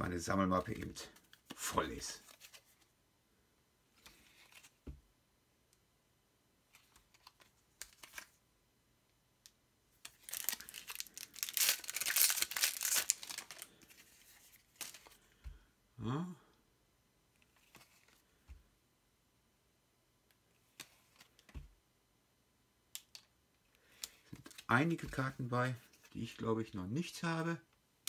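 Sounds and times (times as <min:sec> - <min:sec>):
foil wrapper crinkling and tearing: 0:10.1 - 0:13.8.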